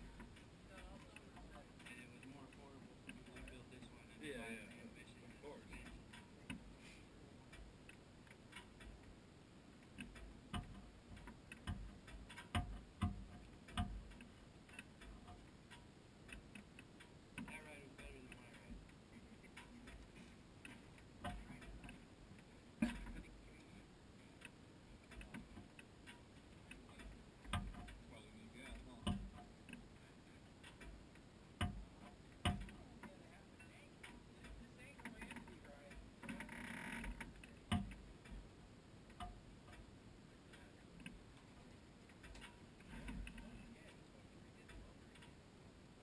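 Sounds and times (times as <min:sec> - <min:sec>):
faint clicks and knocks: 0:00.0 - 0:46.0.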